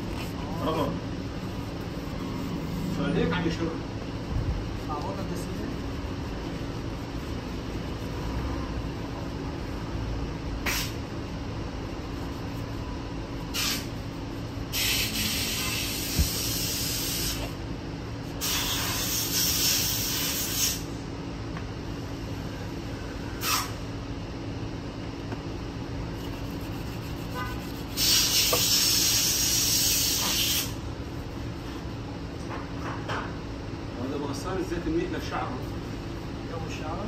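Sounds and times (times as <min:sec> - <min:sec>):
steady low hum: 0:00.0 - 0:37.0
pressurised spray hissing: 0:13.5 - 0:17.5, 0:27.9 - 0:30.8.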